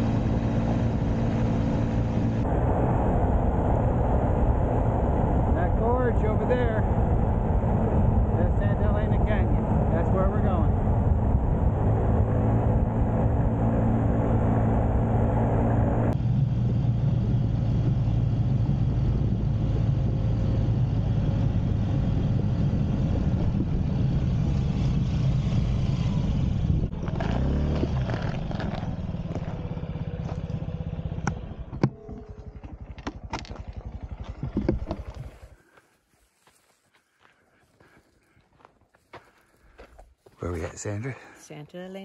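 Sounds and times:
motorbike engine running: 0.0s - 2.5s, 16.1s - 35.6s
wind rush: 0.0s - 28.6s.

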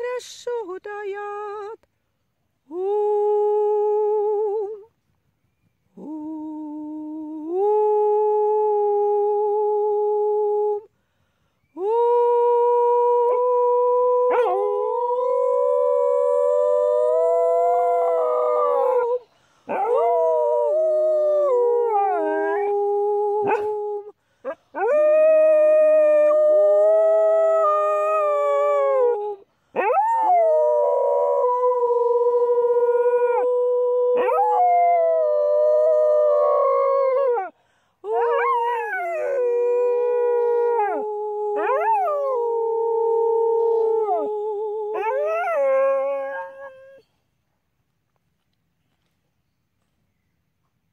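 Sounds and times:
dog howling: 14.1s - 23.8s, 29.8s - 37.5s, 38.1s - 47.0s.

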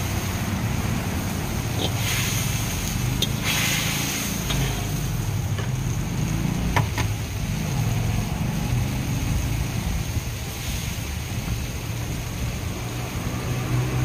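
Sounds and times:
gas burner roaring: 0.0s - 14.0s
brief hiss: 1.9s - 5.0s.

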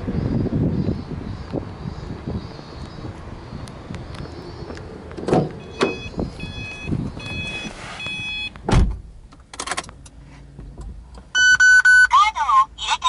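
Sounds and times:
car door shutting: 5.2s - 9.9s
car warning chime beeping: 5.6s - 8.6s, 11.3s - 12.2s.

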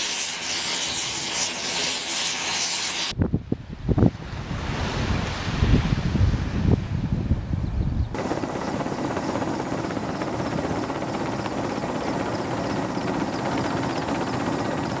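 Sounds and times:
helicopter rotor and engine: 0.0s - 3.1s, 8.1s - 15.0s
wind buffeting microphone: 3.1s - 14.0s.

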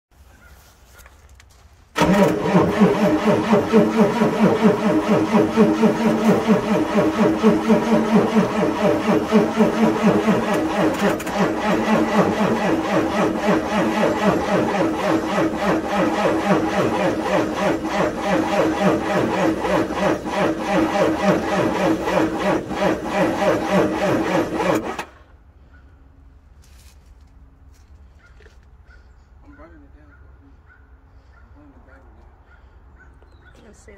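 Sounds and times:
diesel engine cranking: 1.9s - 25.5s.

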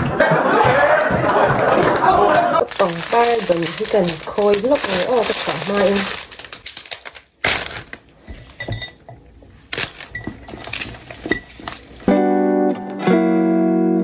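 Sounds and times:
cellophane rustling: 2.6s - 12.2s
stems clinking against glass: 8.4s - 9.2s, 9.8s - 12.1s
glass ringing: 8.6s - 9.1s
acoustic guitar music: 12.0s - 14.0s.

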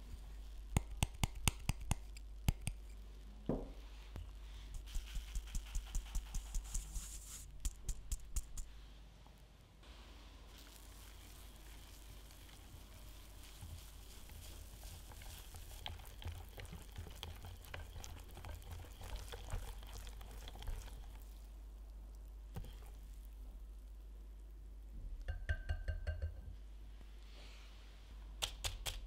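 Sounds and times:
whisk beating batter in glass bowl: 4.8s - 8.6s, 14.4s - 21.2s.

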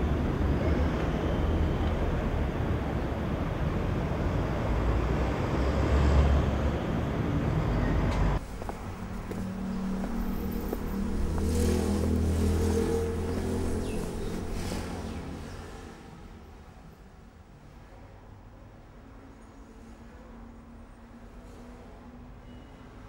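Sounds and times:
road traffic rush: 0.0s - 18.3s.

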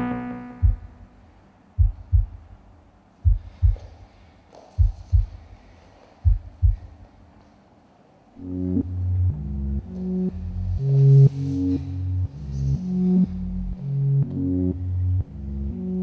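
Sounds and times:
low heartbeat thumps: 0.6s - 1.1s, 1.8s - 4.0s, 4.8s - 5.6s, 6.2s - 7.1s.

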